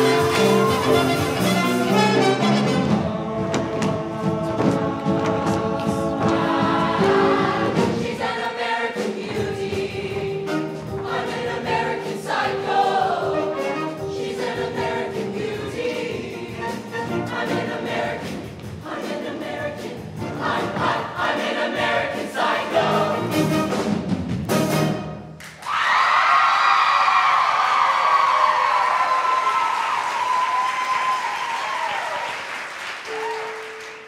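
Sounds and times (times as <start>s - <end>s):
live band with horns and drums: 0.0s - 3.4s, 10.3s - 11.2s, 16.4s - 18.0s, 23.2s - 25.4s
choir singing: 0.0s - 23.8s.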